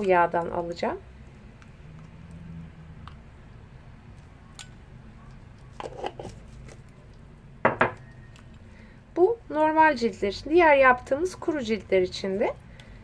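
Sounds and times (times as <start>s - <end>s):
plastic spoon knocking on glass: 7.6s - 8.1s.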